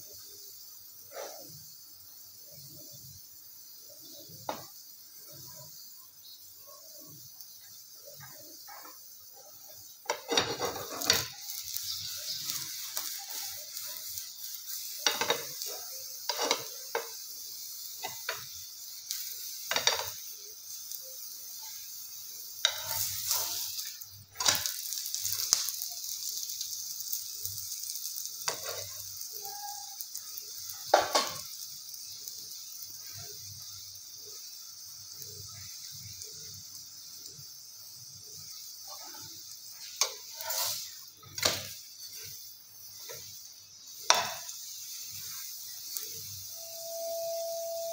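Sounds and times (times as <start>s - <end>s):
flatbread sizzling in a pan: 0.0s - 47.9s
scrapes and knocks against pan: 10.1s - 11.3s.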